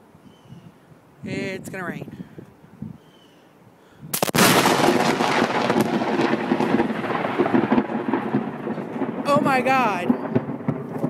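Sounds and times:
lightning crack: 4.1s - 11.0s
rolling thunder: 4.2s - 11.0s.

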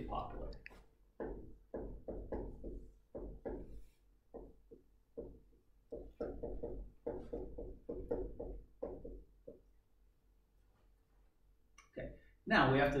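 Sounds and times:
irregular knocks and taps: 0.6s - 9.8s.

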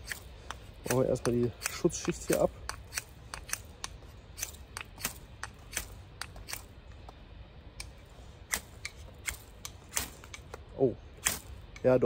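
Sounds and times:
knife scraping ferro rod: 0.0s - 6.6s.

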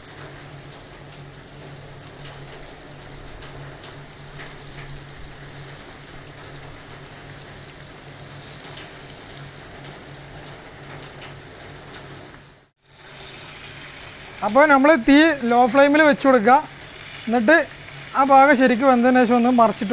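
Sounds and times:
hot oil sizzling: 0.0s - 11.9s, 12.7s - 19.9s.

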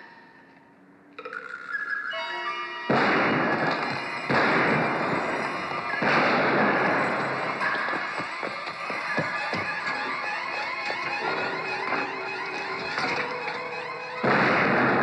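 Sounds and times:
film score music: 0.0s - 15.0s
gunshots: 2.9s - 15.0s.

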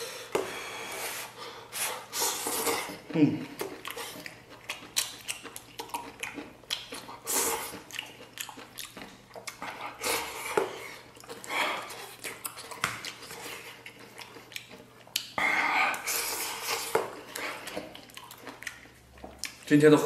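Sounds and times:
slurping noodles: 0.7s - 3.1s
chewing: 2.0s - 19.8s.

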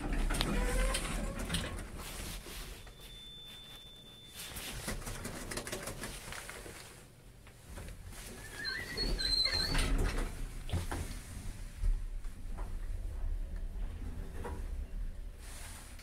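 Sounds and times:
long high steady beep: 2.5s - 4.7s.

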